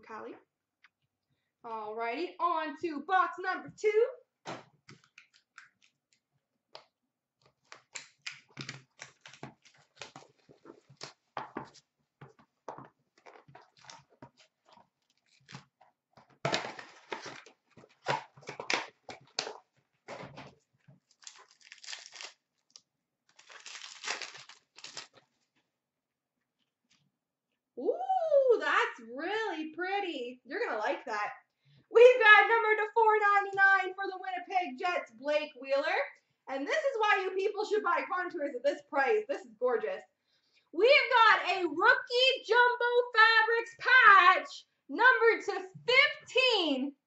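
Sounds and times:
cardboard and wrapper tearing: 7.6s - 11.3s, 13.2s - 15.8s, 16.4s - 20.2s, 21.0s - 25.5s.

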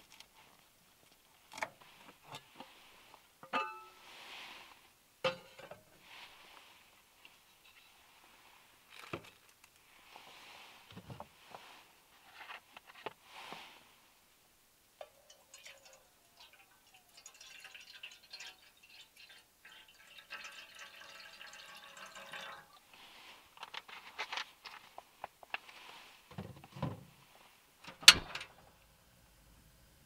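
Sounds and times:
liquid pouring into a pot: 15.0s - 22.9s.

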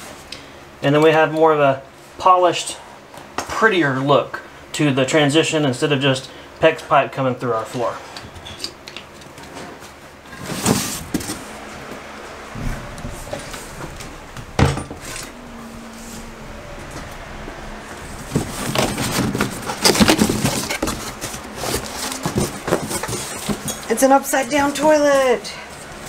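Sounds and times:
handling knocks and clatters: 8.2s - 25.0s
cardboard rustling and scraping: 9.4s - 24.9s.

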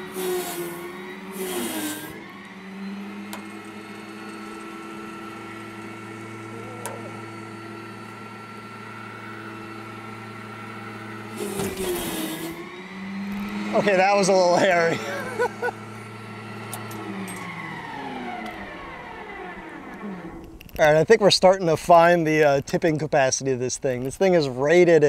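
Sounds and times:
electric motor humming: 0.0s - 22.4s.

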